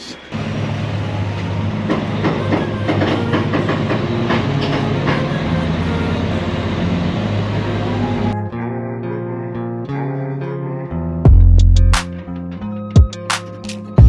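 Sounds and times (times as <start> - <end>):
heavy diesel engine running: 0.0 - 8.4.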